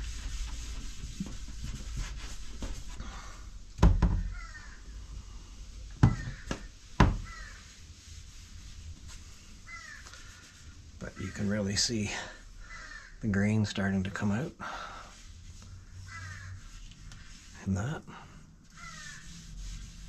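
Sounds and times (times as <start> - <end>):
cloth wiping wood: 0.0 - 3.6, 4.3 - 20.0
knocks on workbench: 6.0 - 7.3
faint high calls: 18.7 - 19.4.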